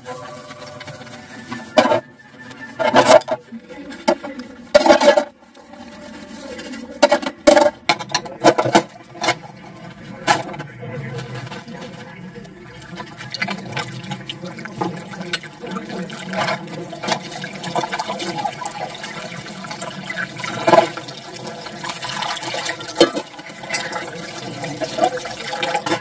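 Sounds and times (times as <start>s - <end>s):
brush scrubbing dishes: 0.0s - 26.0s
metal dishes clanking in sink: 0.4s - 26.0s.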